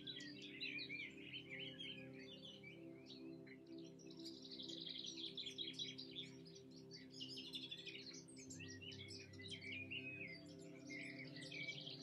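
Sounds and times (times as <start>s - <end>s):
soft background music: 0.0s - 12.0s
songbirds chirping and trilling: 0.0s - 12.0s.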